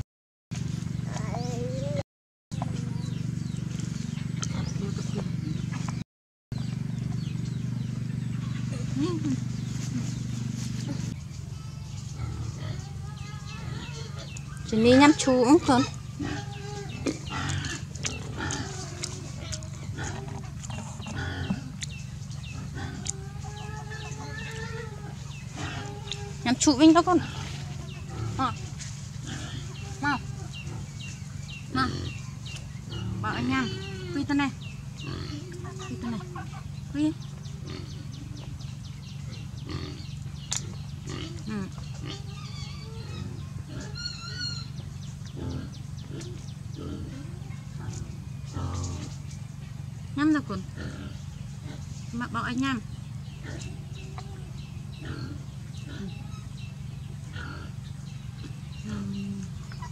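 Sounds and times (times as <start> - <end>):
high wavering animal calls: 1.0 - 2.0, 8.4 - 38.6, 41.0 - 49.2
steady low hum: 6.6 - 59.9.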